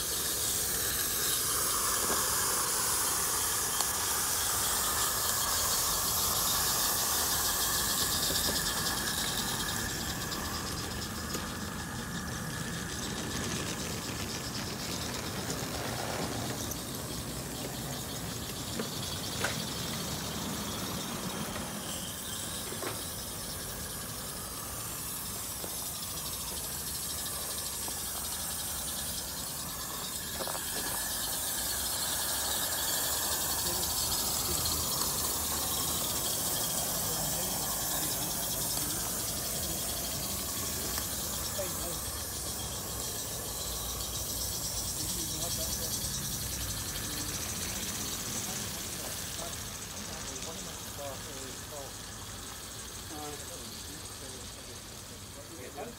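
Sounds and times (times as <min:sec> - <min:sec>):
steam locomotive hissing: 0:00.0 - 0:55.9.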